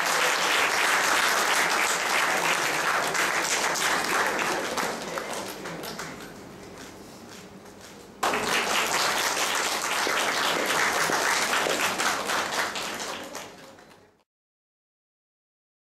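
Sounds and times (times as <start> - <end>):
audience applauding: 0.0 - 6.3, 8.2 - 14.2.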